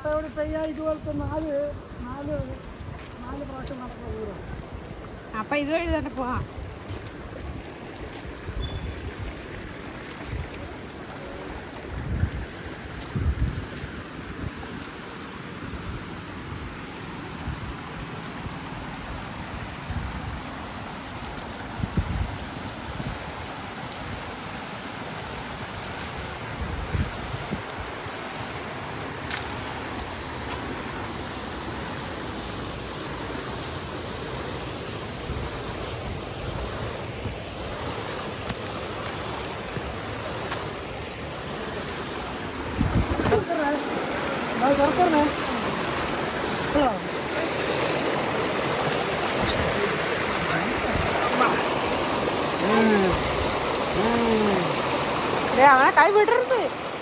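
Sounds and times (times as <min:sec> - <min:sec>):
stream and waterfall rushing: 0:00.0 - 0:57.0
wind buffeting microphone: 0:00.1 - 0:14.8, 0:21.6 - 0:23.5, 0:25.3 - 0:28.1, 0:35.1 - 0:55.8.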